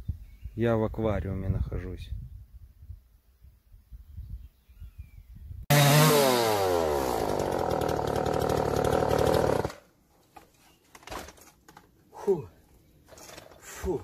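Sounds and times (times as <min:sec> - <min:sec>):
string trimmer running: 0:05.7 - 0:09.8.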